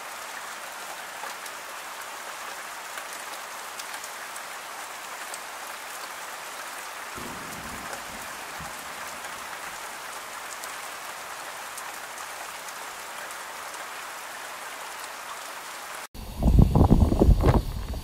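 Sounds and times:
rain falling through trees: 0.0 - 16.2
wind buffeting microphone: 7.2 - 9.4, 16.2 - 18.0.

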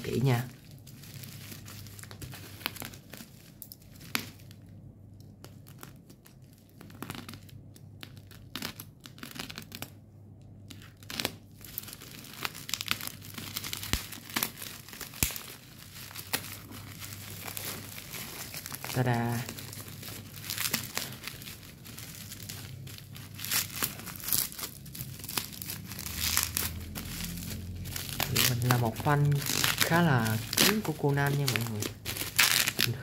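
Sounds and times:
plastic wrap crinkling and tearing: 0.0 - 10.0, 10.6 - 33.0.

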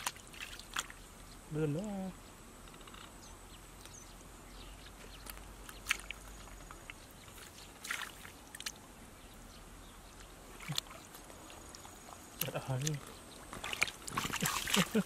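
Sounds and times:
short splashes and drips: 0.0 - 1.0, 5.2 - 6.2, 6.8 - 8.9, 10.2 - 15.0
hands sloshing in muddy water: 7.3 - 8.8, 10.4 - 15.0.

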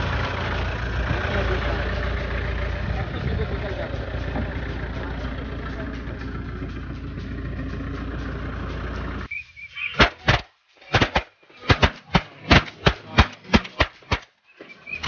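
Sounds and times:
vehicle engine idling: 0.0 - 10.3.

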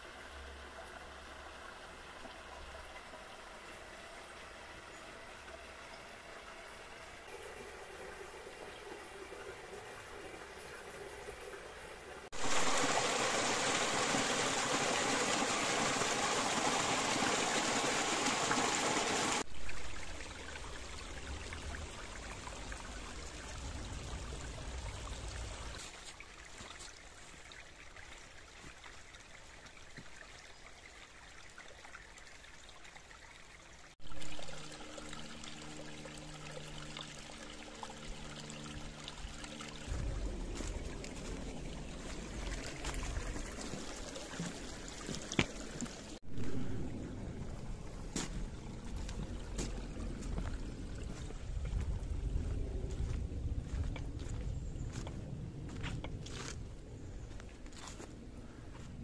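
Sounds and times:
stream rushing over rocks: 12.2 - 29.6, 39.2 - 47.0
low hum: 34.1 - 43.6, 46.2 - 59.0.

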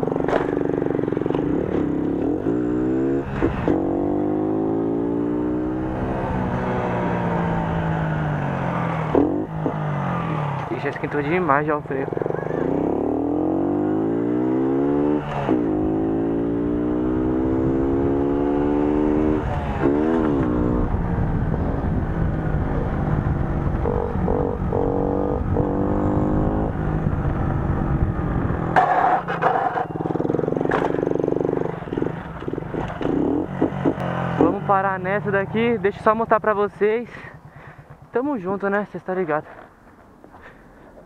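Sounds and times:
moped engine revving: 0.0 - 36.1
metal scraping on asphalt: 28.6 - 34.6.

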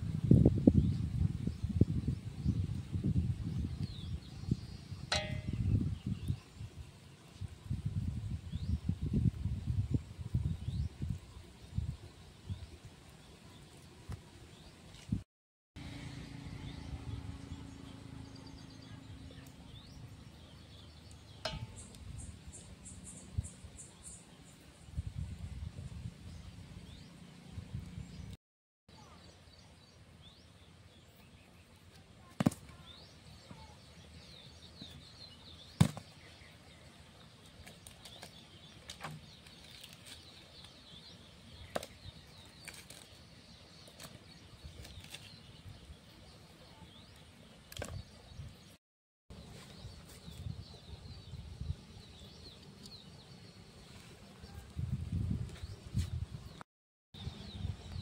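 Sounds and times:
birds chirping: 15.8 - 25.4, 26.2 - 56.6.

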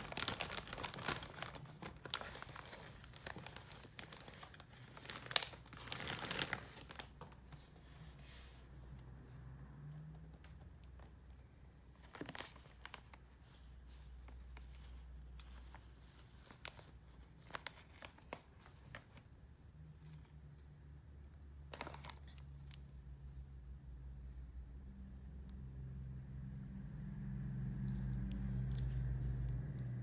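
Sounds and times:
plastic bag crinkling: 0.0 - 7.6, 11.9 - 19.2, 21.7 - 22.9
low steady hum: 0.0 - 30.0.

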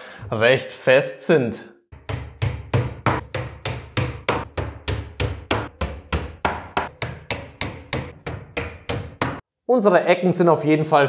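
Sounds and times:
hammer driving nails: 2.0 - 9.4.

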